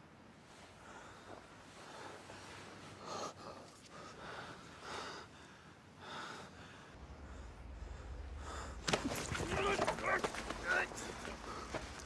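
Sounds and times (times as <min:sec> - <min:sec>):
men breathing heavily and gasping: 0:00.8 - 0:12.0.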